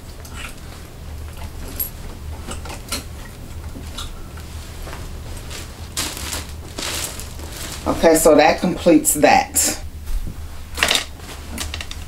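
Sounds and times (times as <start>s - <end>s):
steady low hum: 0.0s - 12.0s
clothes rustling: 3.8s - 9.2s, 11.1s - 12.0s.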